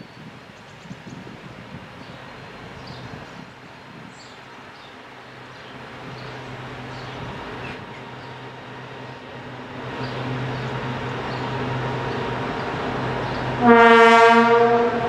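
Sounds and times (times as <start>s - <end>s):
diesel locomotive engine drone: 0.0s - 15.0s
locomotive horn blast: 13.6s - 15.0s.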